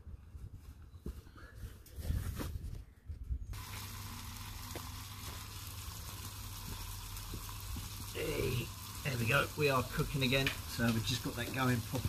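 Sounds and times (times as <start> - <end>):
steaks sizzling in a pan: 3.6 - 12.0.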